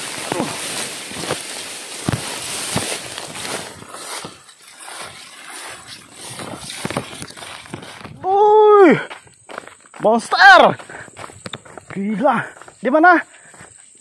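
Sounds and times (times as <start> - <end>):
twigs snapping: 0.0 - 8.2
footfalls in undergrowth: 0.0 - 14.0
grass and ferns rustling: 0.0 - 14.0.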